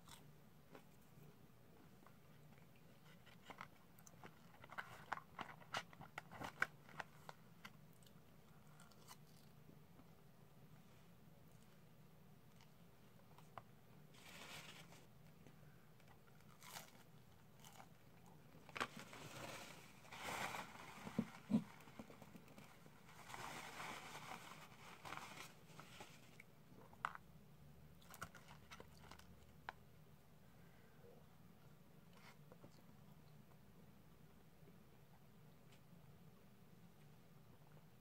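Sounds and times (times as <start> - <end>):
chewing and crunching food: 0.0 - 1.2, 2.4 - 9.6, 16.0 - 18.6, 28.0 - 29.7
paper napkin rustling: 14.1 - 15.1, 23.0 - 26.4.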